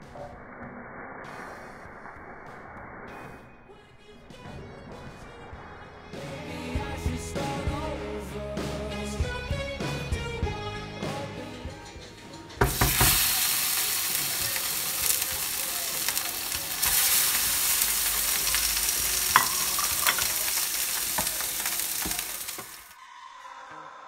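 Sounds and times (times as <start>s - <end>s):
fish sizzling in hot oil: 12.6s - 22.9s.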